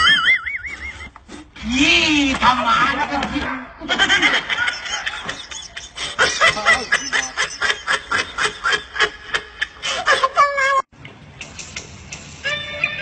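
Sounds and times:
man laughing hard: 3.8s - 10.6s.

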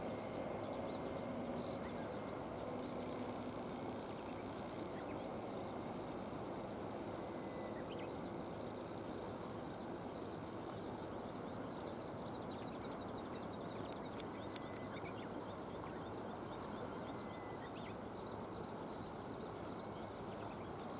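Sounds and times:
small birds twittering: 0.0s - 20.9s
sharp click: 13.9s - 15.1s.

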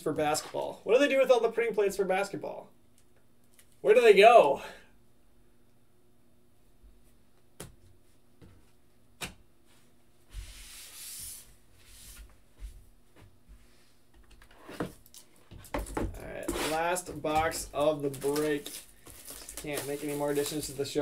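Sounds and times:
cards sliding across table: 9.7s - 12.4s.

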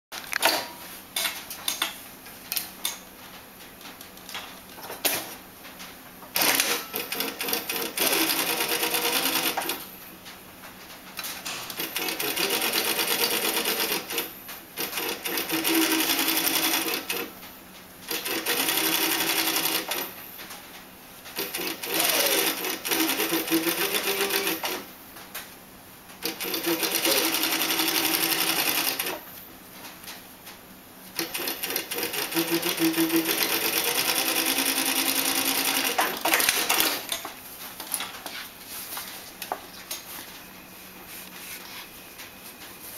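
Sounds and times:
sewing machine stitching: 6.4s - 9.8s, 11.8s - 17.3s, 18.1s - 20.1s, 21.4s - 24.8s, 26.2s - 29.2s, 31.2s - 37.1s.

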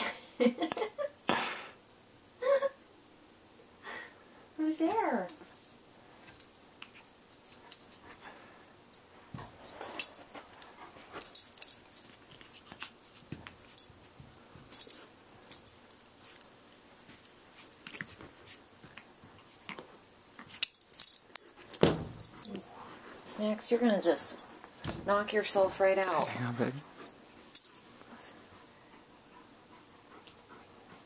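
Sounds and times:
paws tapping and scratching: 9.4s - 22.7s, 27.0s - 31.0s.

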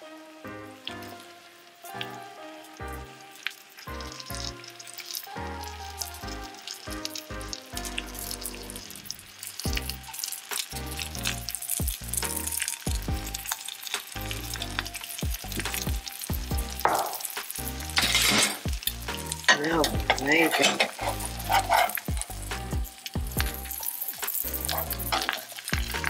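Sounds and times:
bread sizzling in a frying pan: 0.0s - 26.0s
spatula scraping a pan: 18.0s - 18.7s, 20.1s - 22.2s.

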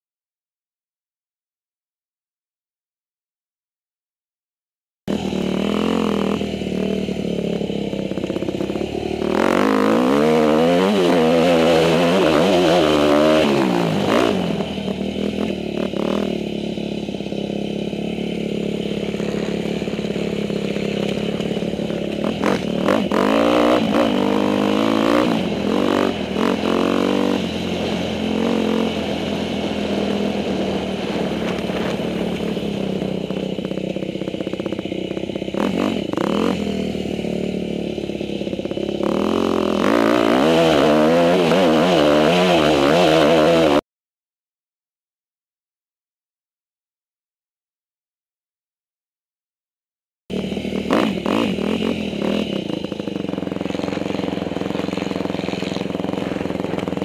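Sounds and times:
dirt bike engine revving: 5.1s - 43.8s, 50.3s - 57.0s.

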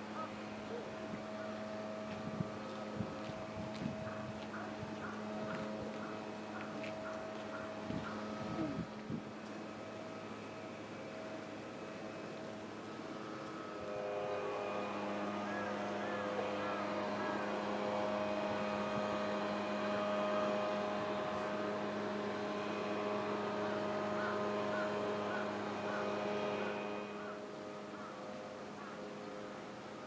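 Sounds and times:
steady mechanical hum: 0.0s - 30.0s.

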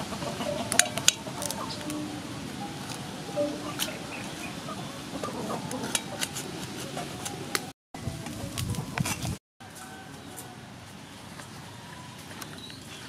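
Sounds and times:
knife cutting greens: 5.8s - 7.7s.

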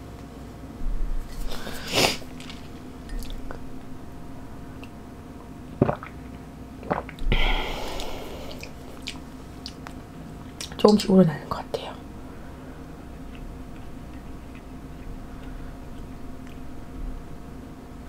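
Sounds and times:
faint steady hum: 0.0s - 18.0s
handling rustles and scrapes: 1.1s - 2.9s.

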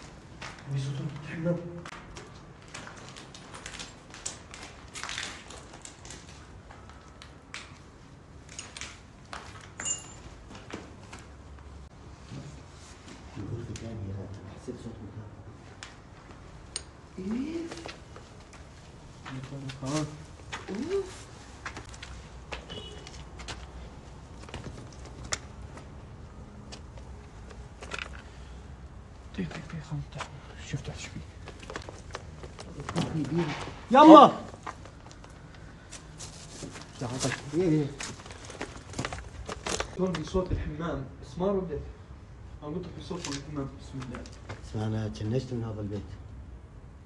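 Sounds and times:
footsteps over debris: 34.5s - 40.3s.

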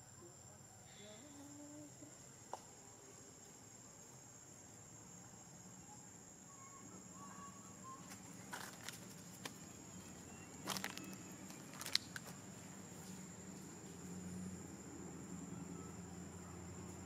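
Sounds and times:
faint chirps: 0.0s - 12.3s
steady high-pitched hum: 0.0s - 17.0s.

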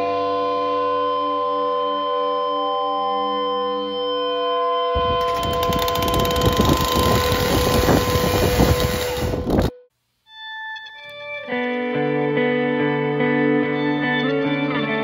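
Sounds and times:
chainsaw cutting box spring: 5.1s - 9.7s
guitar music: 10.4s - 15.0s.

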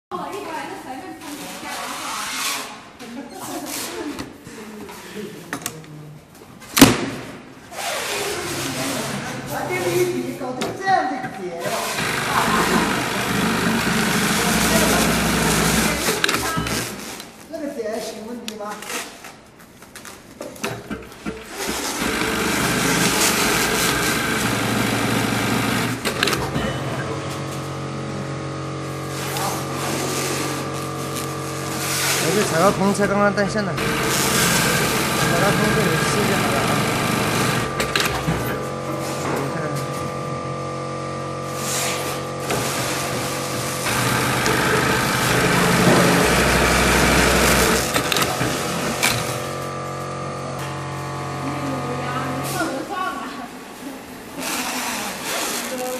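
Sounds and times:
sewing machine motor humming: 11.6s - 17.2s, 20.6s - 38.9s, 40.1s - 52.8s.

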